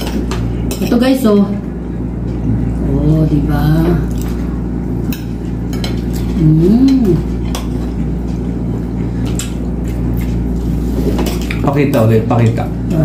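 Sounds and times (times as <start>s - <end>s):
steady low hum: 0.0s - 13.0s
person humming: 6.3s - 7.4s.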